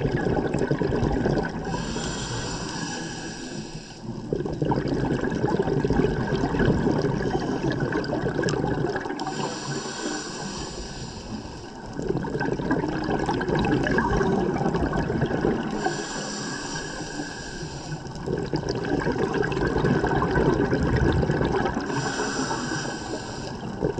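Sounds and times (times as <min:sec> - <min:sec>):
bubbling exhalation underwater: 0:00.0 - 0:02.6, 0:04.1 - 0:09.6, 0:11.9 - 0:16.1, 0:18.2 - 0:23.9
hissing inhalation through regulator: 0:01.6 - 0:04.2, 0:07.0 - 0:08.2, 0:09.1 - 0:12.0, 0:15.6 - 0:18.6, 0:21.7 - 0:23.9.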